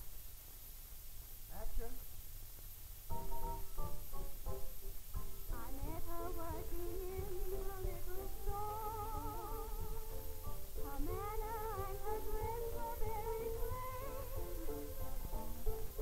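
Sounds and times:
low steady hum: 0:00.0 - 0:16.0
instrumental accompaniment: 0:03.1 - 0:16.0
woman singing with vibrato: 0:05.5 - 0:16.0.

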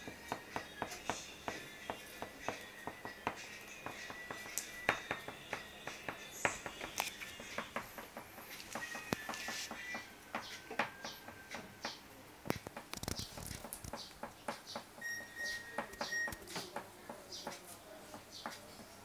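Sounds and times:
light taps: 0:15.8 - 0:19.0.

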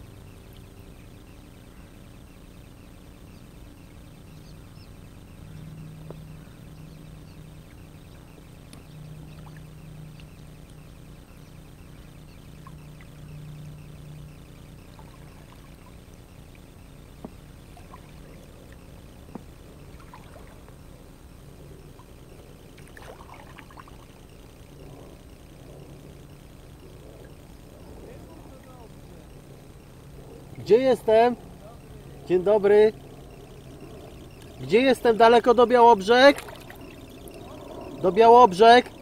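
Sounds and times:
low hum: 0:00.0 - 0:39.0
water splashing off paddle blades: 0:22.8 - 0:24.1, 0:36.3 - 0:36.8.

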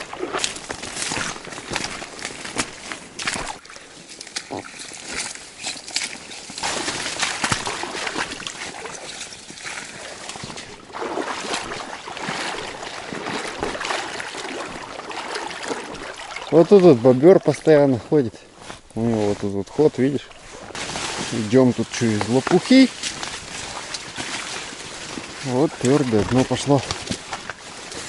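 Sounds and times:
footsteps sloshing in water: 0:00.0 - 0:28.0
plant stems rustling: 0:00.0 - 0:28.0.

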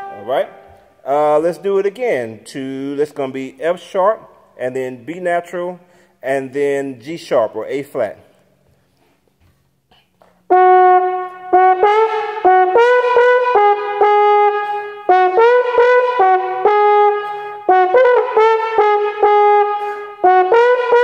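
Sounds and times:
trombone playing high notes: 0:00.0 - 0:01.3, 0:10.5 - 0:21.0.

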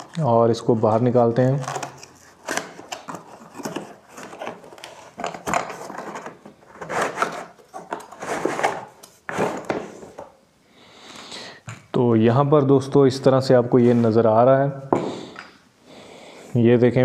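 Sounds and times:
cardboard and plastic scraping: 0:00.0 - 0:10.3.

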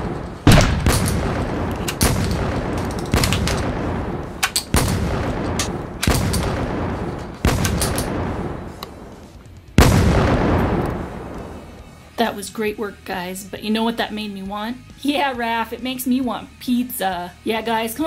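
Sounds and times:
blast bangs: 0:00.0 - 0:11.8.

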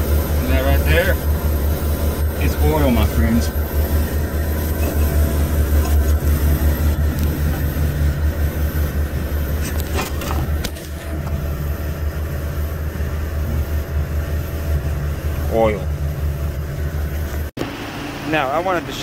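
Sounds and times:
cooler unit humming: 0:00.0 - 0:19.0.

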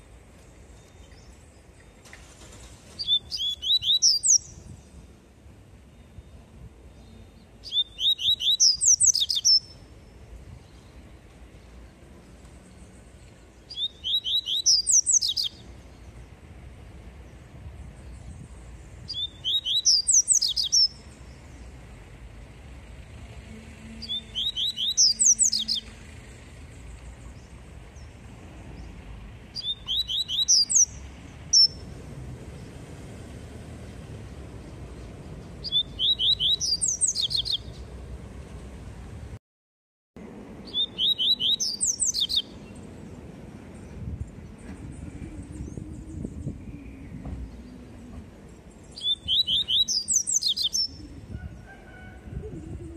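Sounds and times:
bird singing whistled notes: 0:03.0 - 0:05.0, 0:05.9 - 0:09.9, 0:13.6 - 0:15.9, 0:18.0 - 0:21.2, 0:24.0 - 0:25.9, 0:29.6 - 0:31.8, 0:35.6 - 0:37.9, 0:40.6 - 0:42.8, 0:48.6 - 0:52.9.

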